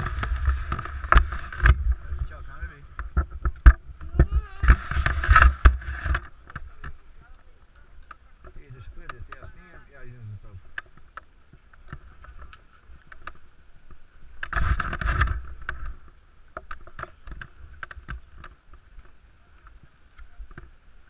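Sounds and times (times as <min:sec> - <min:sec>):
skis scraping over snow: 0:00.0 - 0:03.0.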